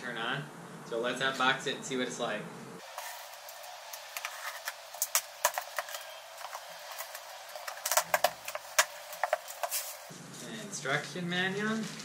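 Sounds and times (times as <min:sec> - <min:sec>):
cardboard flaps crackling: 0:02.9 - 0:10.1.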